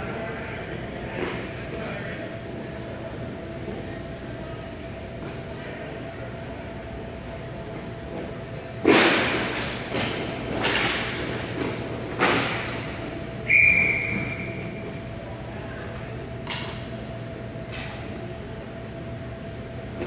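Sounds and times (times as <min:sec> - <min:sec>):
referee's whistle blast: 0:13.5 - 0:14.7.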